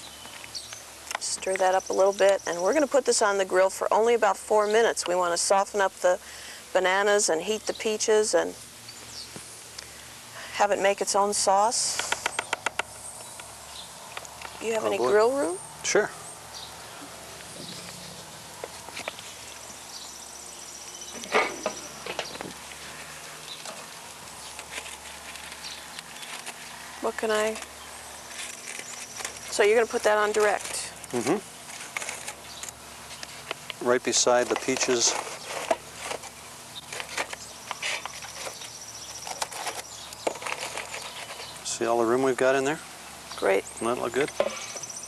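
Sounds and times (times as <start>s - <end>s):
metal clatter at grill: 21.2s - 22.4s.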